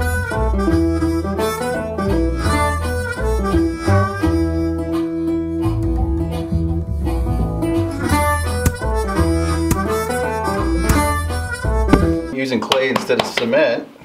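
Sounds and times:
bluesy harmonica: 0.0s - 12.4s
guitar: 0.0s - 12.4s
steady bass line: 5.7s - 12.3s.

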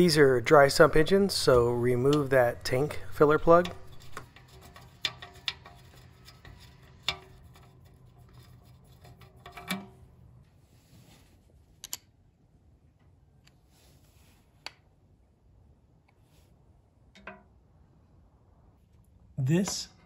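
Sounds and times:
tools clicking and knocking: 2.0s - 10.1s, 11.8s - 12.1s, 17.1s - 17.6s.

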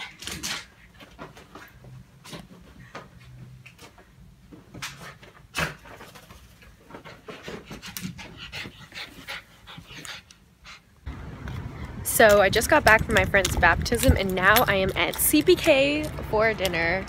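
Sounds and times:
small dog panting: 7.3s - 10.9s.

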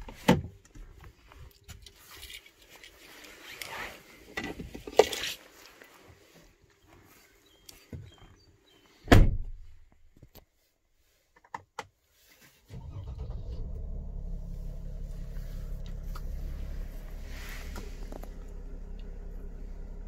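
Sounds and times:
diesel engine starting and idling: 12.7s - 20.0s.

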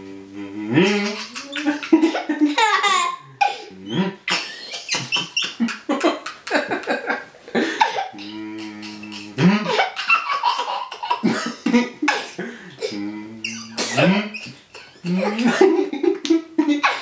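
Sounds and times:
toddler laughing: 0.9s - 3.7s, 7.6s - 17.0s.

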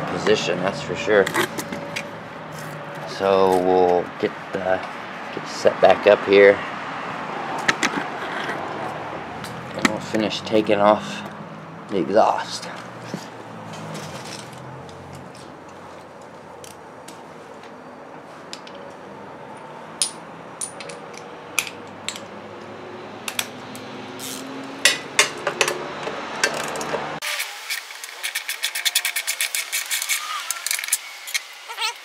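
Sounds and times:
hand tools clinking on metal: 19.5s - 22.3s
ratchet wrench clicking: 24.2s - 25.0s.

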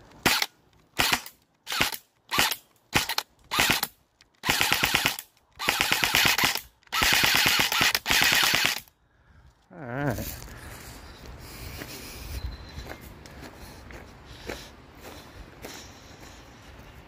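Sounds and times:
airsoft rifle automatic fire: 0.2s - 8.9s.

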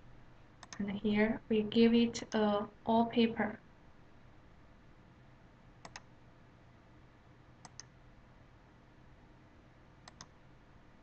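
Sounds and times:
faint room hiss: 0.0s - 11.0s
computer mouse clicks: 0.6s - 0.8s, 5.8s - 6.1s, 7.6s - 7.9s, 10.0s - 10.4s.

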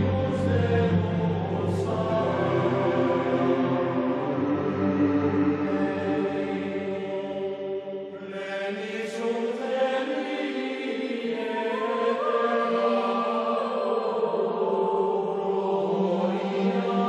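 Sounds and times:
chant with long held notes: 0.0s - 17.0s.

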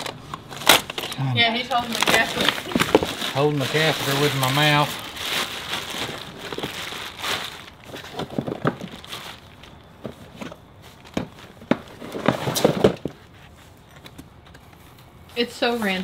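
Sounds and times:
fabric and cardboard rustling: 0.0s - 16.0s.

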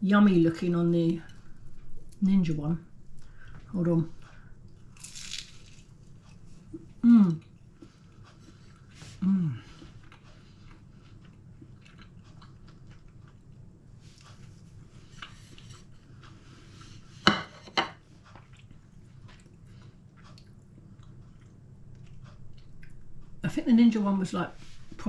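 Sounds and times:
chewing flaky pastry: 4.1s - 17.2s, 18.0s - 23.4s.

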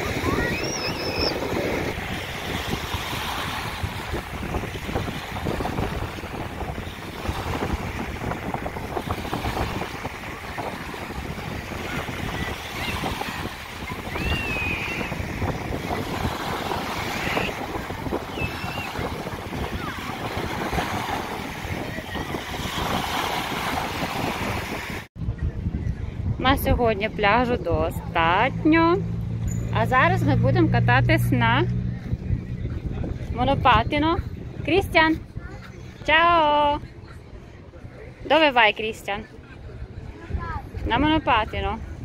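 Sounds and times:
small waves breaking on shore: 0.0s - 25.1s
wind buffeting microphone: 0.0s - 42.0s.

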